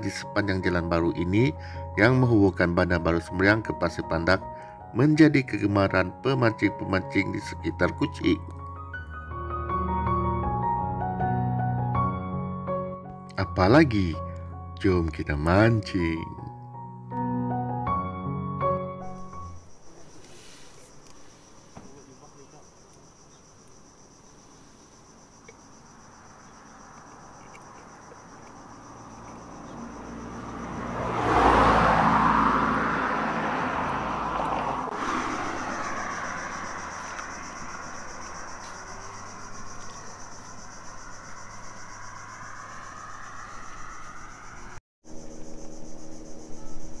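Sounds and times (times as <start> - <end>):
vehicle passing by: 26.2 - 44.8.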